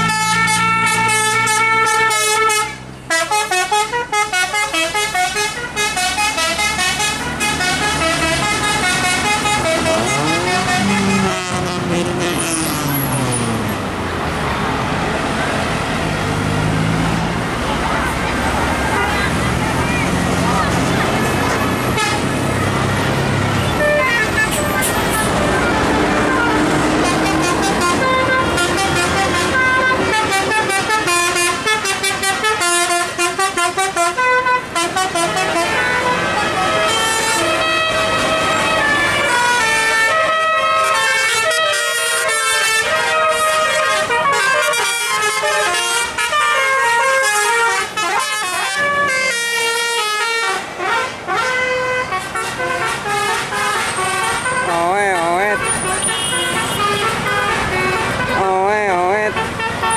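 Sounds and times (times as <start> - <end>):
musical air horn melody: 0.0 - 12.8, 21.9 - 22.3, 23.7 - 58.5
bus engine rumbling: 0.0 - 59.9.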